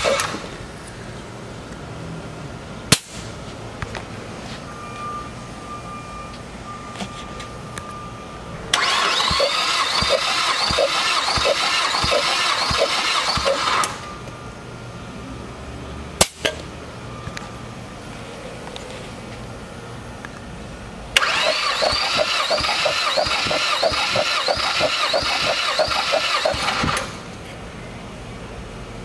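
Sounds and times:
engine cranking on starter: 0.0 - 0.6, 8.7 - 14.1, 21.2 - 27.4.

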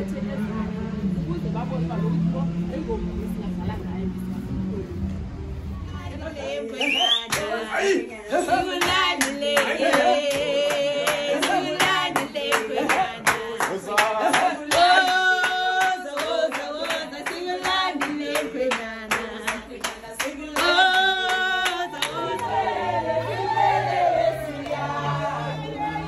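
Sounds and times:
lower singing voices: 0.0 - 26.0
group singing: 5.8 - 26.0
hand-clapping in time: 7.1 - 7.5, 8.5 - 23.3.

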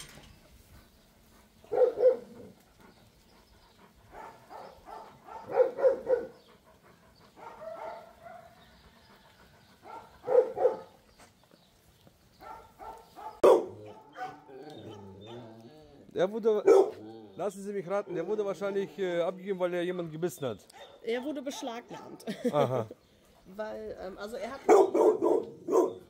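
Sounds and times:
dog barking: 1.7 - 2.5, 4.1 - 6.4, 7.4 - 8.6, 9.8 - 10.9, 12.4 - 15.5, 16.6 - 17.2, 20.7 - 21.2, 21.9 - 22.2, 24.6 - 26.0.

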